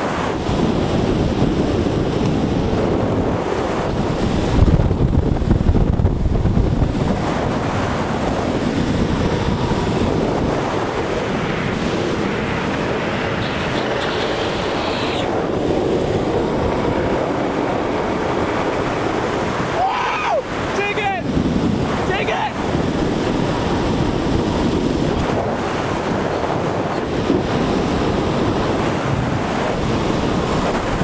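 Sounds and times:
skateboard wheels rolling on pavement: 0:00.0 - 0:31.0
wind buffeting microphone: 0:00.0 - 0:31.0.

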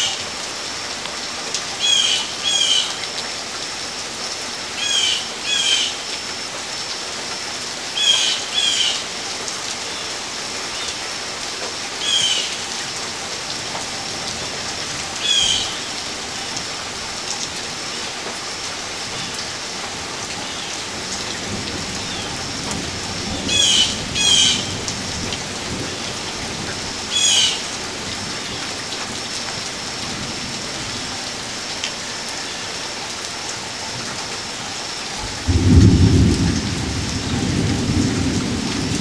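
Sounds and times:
steady rain: 0:00.0 - 0:39.0
low thunder rumble: 0:35.2 - 0:39.0.

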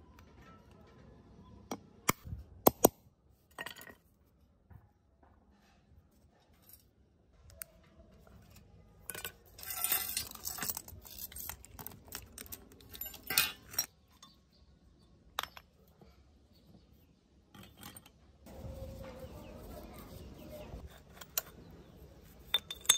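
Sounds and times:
bike parts rattling and clinking: 0:03.5 - 0:04.1, 0:08.5 - 0:14.6, 0:15.4 - 0:15.8, 0:17.5 - 0:18.2, 0:22.4 - 0:22.9.

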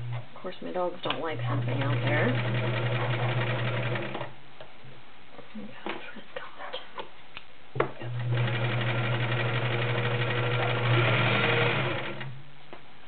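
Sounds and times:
sewing machine stitching: 0:01.2 - 0:04.3, 0:08.1 - 0:12.4.

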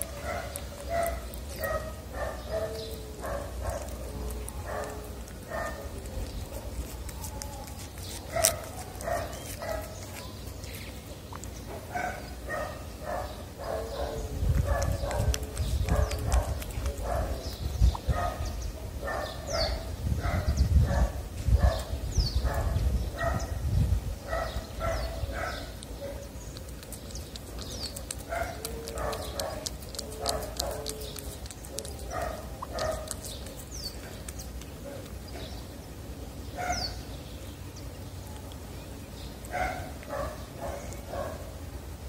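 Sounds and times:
cat chewing and lapping food: 0:00.0 - 0:18.6, 0:24.7 - 0:36.4, 0:37.1 - 0:41.6.

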